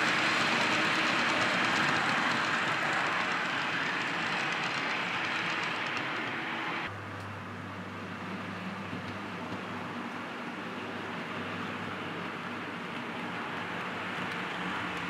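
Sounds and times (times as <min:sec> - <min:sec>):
model train wheels rattling on rails: 0:00.0 - 0:06.9, 0:11.7 - 0:15.0.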